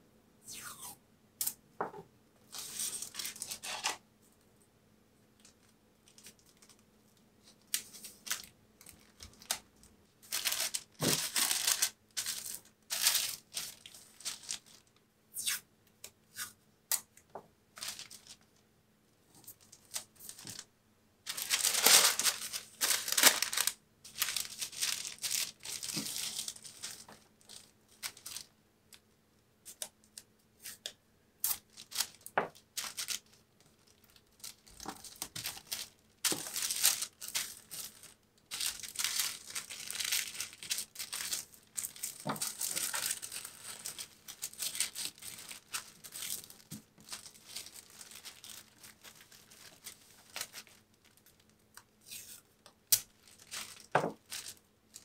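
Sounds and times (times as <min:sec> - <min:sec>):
tissue paper rustling: 0:10.2 - 0:14.8, 0:17.8 - 0:18.4, 0:21.3 - 0:28.5, 0:32.8 - 0:51.4.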